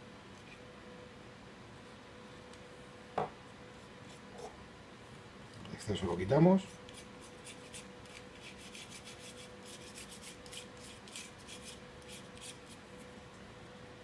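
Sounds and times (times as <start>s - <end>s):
toothbrush scrubbing metal: 6.6s - 12.8s.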